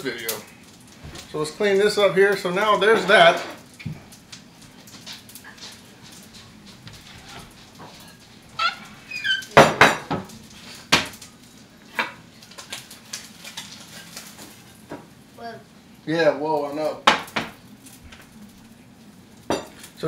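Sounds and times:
dishes clattering: 4.9s - 11.2s, 19.4s - 20.0s
high-pitched squeaks: 8.6s - 9.6s.

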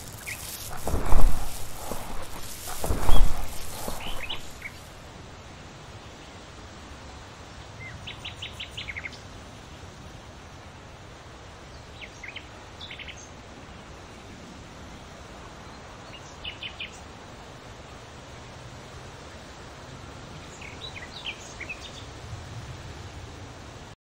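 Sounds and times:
small birds chirping: 0.0s - 4.9s
steady low hiss: 0.0s - 24.0s.

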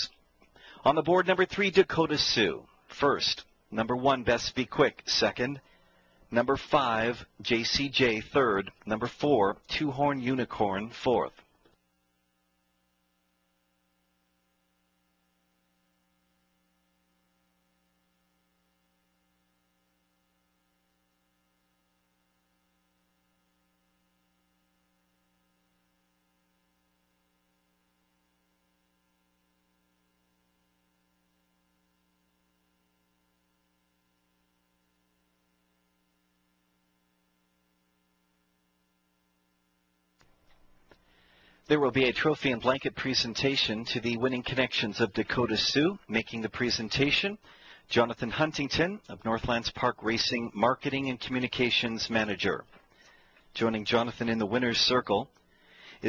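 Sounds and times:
faint electrical hum: 0.0s - 56.0s.

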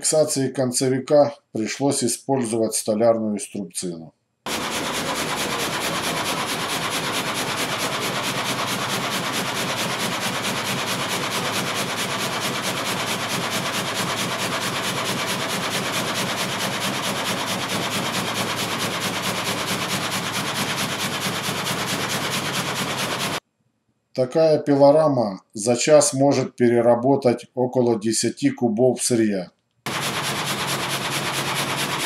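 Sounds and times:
gang saw cutting log: 4.5s - 23.4s, 29.9s - 32.0s.

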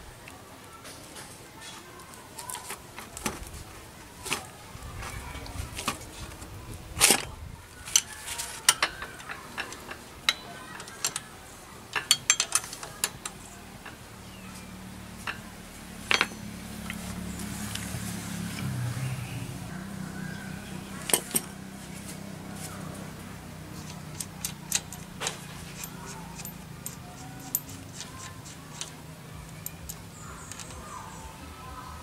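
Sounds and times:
steel tools clinking on metal: 7.2s - 14.5s, 16.1s - 16.6s, 23.8s - 30.9s
sharp metallic clicks: 23.8s - 30.8s.

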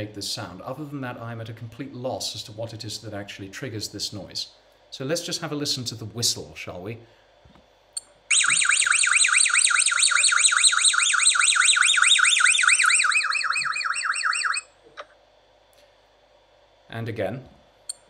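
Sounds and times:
parrot squeaky whistle call: 8.3s - 14.7s.

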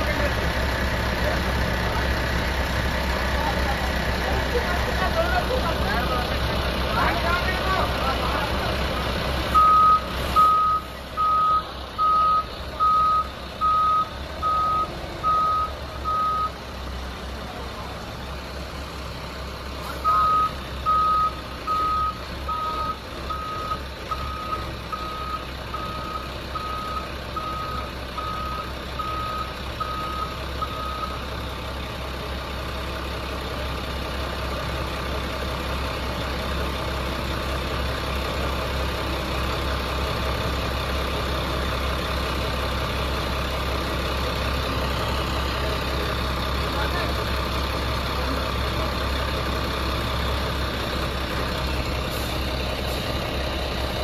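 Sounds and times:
diesel engine running: 0.0s - 54.0s
reversing alarm beeping: 9.6s - 16.6s, 20.0s - 31.2s.

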